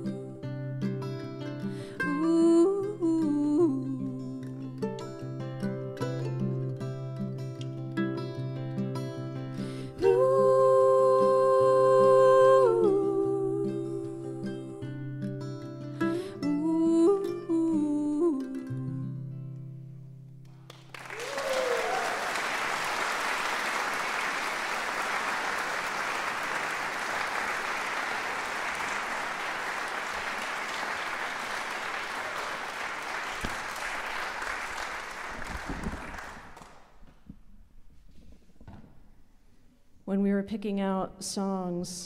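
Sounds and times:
audience applauding: 20.5s - 36.9s
audience cheering: 20.9s - 36.7s.

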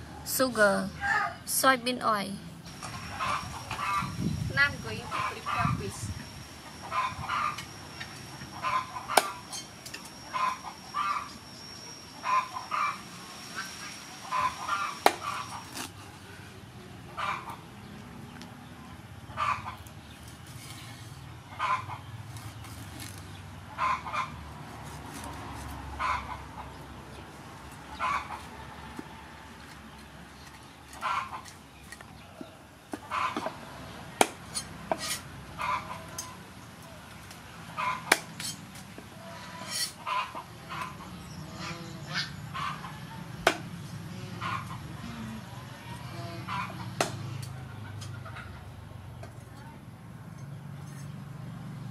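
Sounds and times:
chicken clucking: 8.5s - 9.2s, 17.2s - 17.6s, 21.5s - 22.1s, 23.7s - 24.3s, 27.9s - 28.6s, 31.0s - 31.5s, 32.2s - 33.6s, 35.0s - 36.4s, 39.2s - 43.2s, 44.4s - 48.8s
knife scraping fish: 39.6s - 40.0s.

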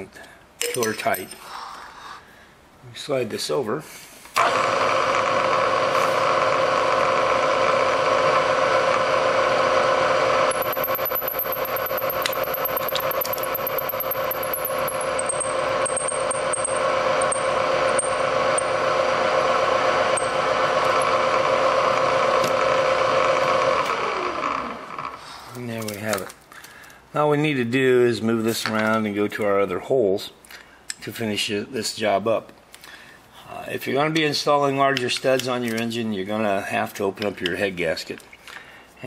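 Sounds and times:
milling machine running: 4.4s - 25.2s
thin high whine: 10.4s - 22.0s
faint broken high tones: 10.5s - 18.7s.

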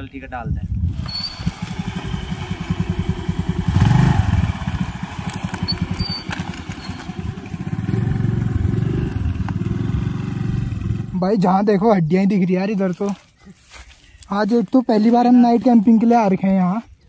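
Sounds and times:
scooter engine revving: 0.9s - 11.2s.

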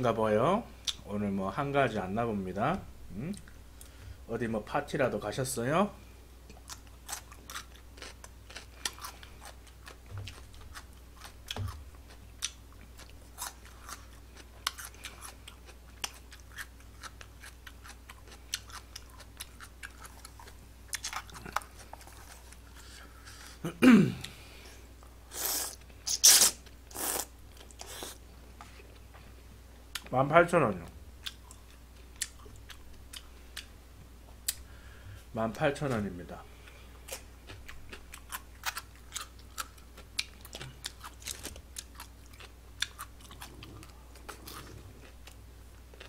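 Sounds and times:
close chewing with mouth clicks: 6.4s - 23.6s, 31.2s - 33.8s, 36.6s - 46.0s.

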